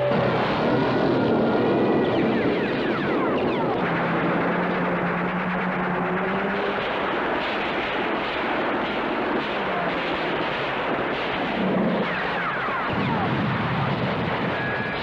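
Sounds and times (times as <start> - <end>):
explosions: 0.0 - 15.0
gunfire: 0.0 - 15.0.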